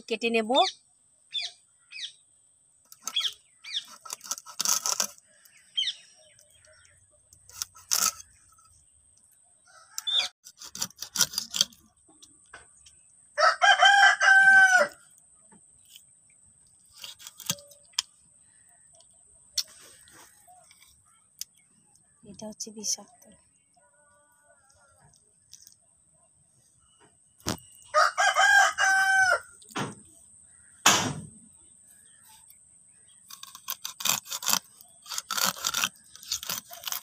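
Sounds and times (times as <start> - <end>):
fish being scaled and cut: 2.9 - 5.6, 7.3 - 8.9, 10.0 - 11.9, 33.2 - 37.0
rooster crowing: 9.6 - 10.3, 13.4 - 15.0, 27.9 - 29.6.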